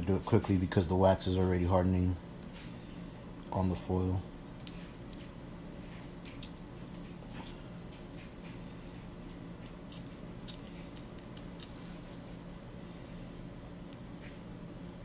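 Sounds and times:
steady low hum: 0.0 - 15.0
aluminium foil crinkling: 8.6 - 12.3.

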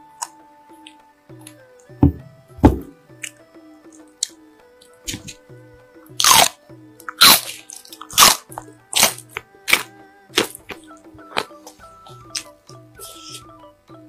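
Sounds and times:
soft background music: 0.0 - 14.0
crunching bites of peppers: 6.2 - 13.4.

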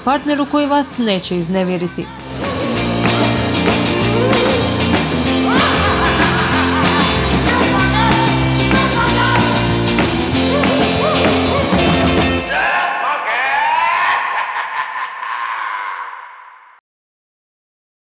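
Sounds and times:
music with bass and drums: 2.1 - 12.5.

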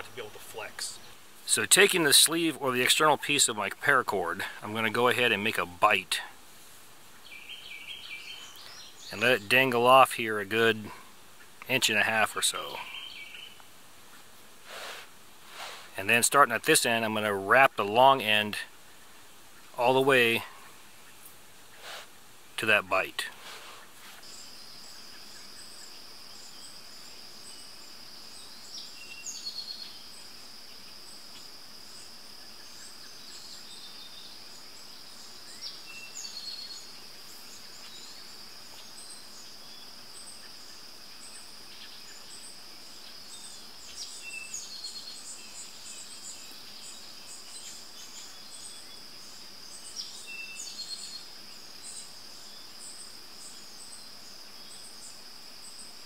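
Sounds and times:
bird chirps: 7.1 - 14.9, 22.6 - 56.0
high-pitched insect trill: 24.2 - 56.0.

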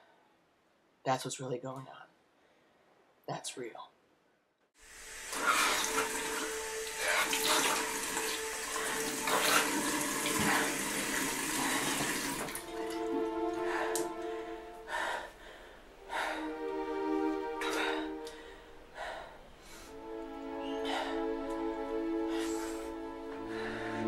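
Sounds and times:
tap water splashing in sink: 5.3 - 13.2
sustained music chords: 12.6 - 15.0, 15.9 - 24.0.

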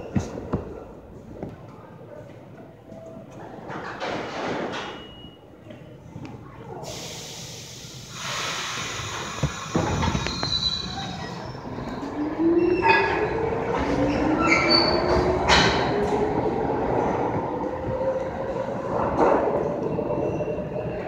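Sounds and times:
air hissing: 6.8 - 10.7
wheels squealing on rails: 8.5 - 15.9.

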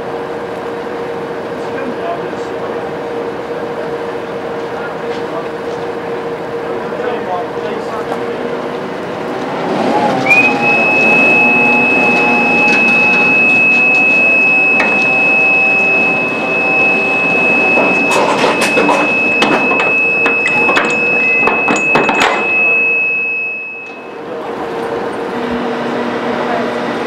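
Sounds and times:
diesel engine hum: 0.0 - 27.0
high-pitched warning tone: 10.3 - 25.1
metallic clanks of chains: 17.6 - 24.0.

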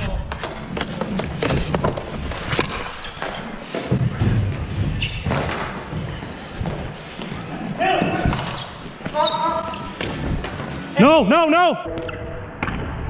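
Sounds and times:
hockey sticks and ball clacking: 0.0 - 6.0.

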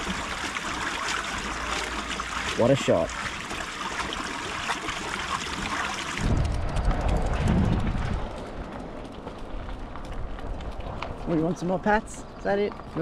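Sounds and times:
water flowing over water wheel: 0.0 - 8.0
wind buffeting microphone: 6.2 - 13.0.

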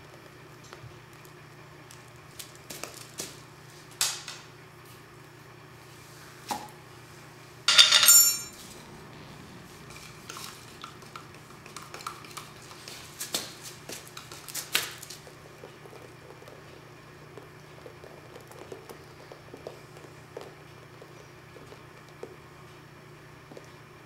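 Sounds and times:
clinks and knocks of hard objects: 7.7 - 8.6
ringing metallic clatter: 7.7 - 8.6.

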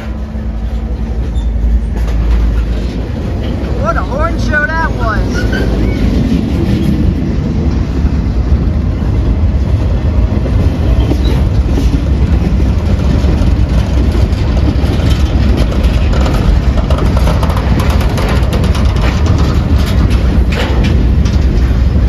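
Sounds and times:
freight cars rumbling on rails: 0.0 - 22.0
wheels clicking over track: 10.4 - 22.0.

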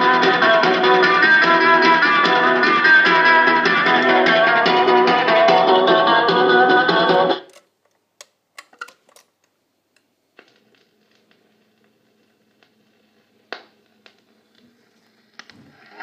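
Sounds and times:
record changer mechanism clicks: 7.4 - 10.5.

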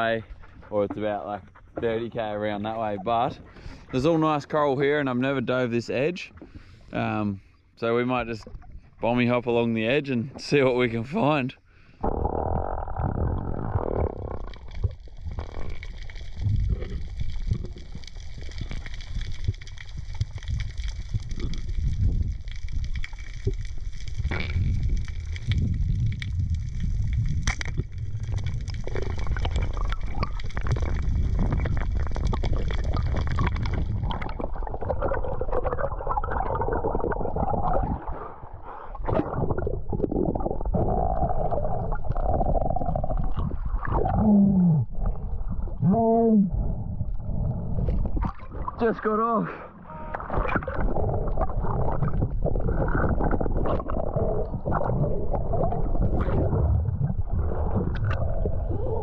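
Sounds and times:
muffled underwater rumble: 12.0 - 59.0
water gurgling: 12.0 - 59.0.

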